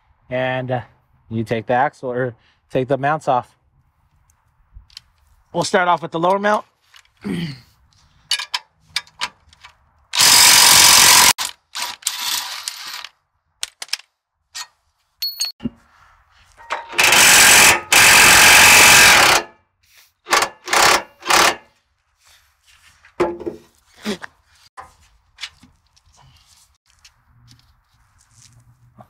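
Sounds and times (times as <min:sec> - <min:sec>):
impact wrench hammering: 0:16.6 - 0:19.5, 0:20.3 - 0:21.7.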